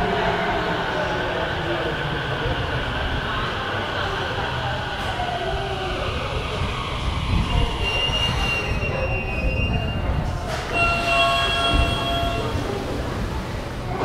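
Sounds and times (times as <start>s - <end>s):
electric train rumbling: 0.0s - 14.0s
high-pitched train squealing: 6.3s - 12.7s.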